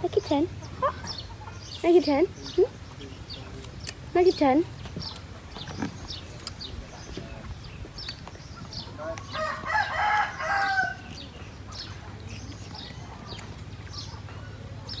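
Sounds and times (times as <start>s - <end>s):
small birds chirping: 0.0s - 15.0s
rooster crowing: 9.0s - 11.1s.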